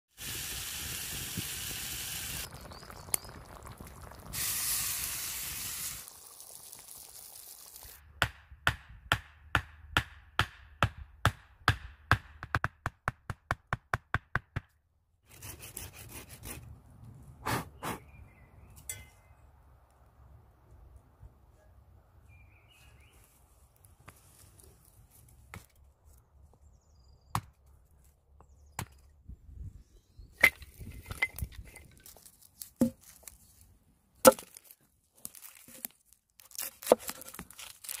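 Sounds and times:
food sizzling in a pan: 0.2s - 8.0s.

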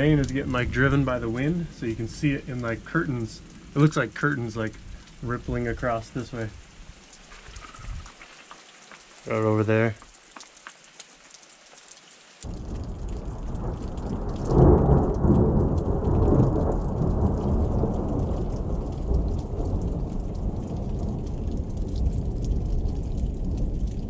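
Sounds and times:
thunder rumbling: 0.0s - 6.6s, 12.5s - 24.0s
rain pattering: 0.0s - 24.0s.

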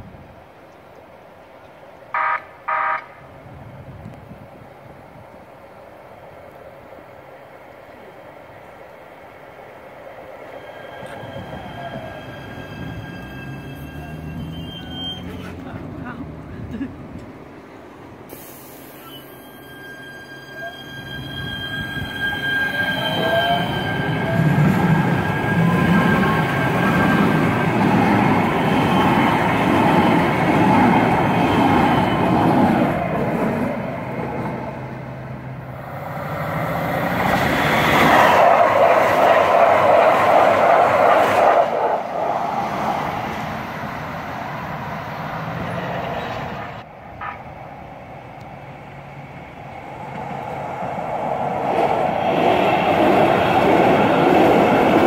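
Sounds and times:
train wheels rumbling on rail: 3.3s - 55.0s
train wheel squeal: 10.4s - 15.6s, 18.3s - 29.4s, 31.4s - 32.6s.

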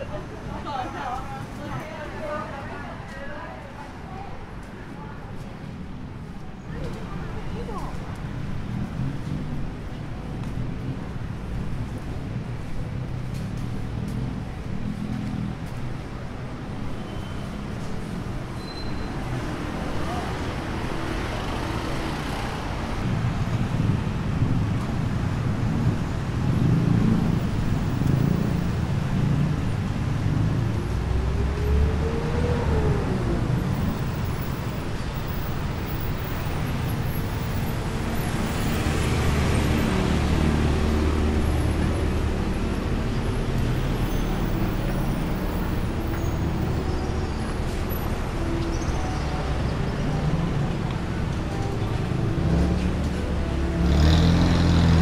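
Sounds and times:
traffic rumble: 0.0s - 55.0s
engine revving: 52.4s - 55.0s.

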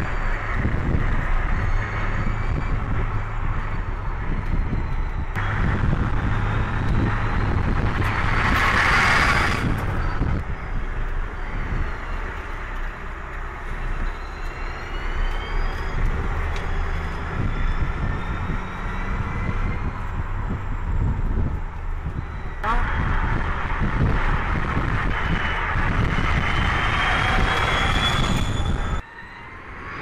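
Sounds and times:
tyre and wind noise: 0.0s - 29.0s
loud rush of noise: 5.4s - 10.5s, 22.6s - 29.0s.

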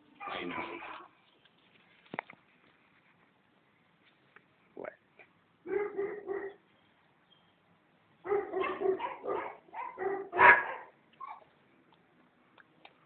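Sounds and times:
dog barking: 0.2s - 1.0s, 5.7s - 6.6s, 8.2s - 11.4s.

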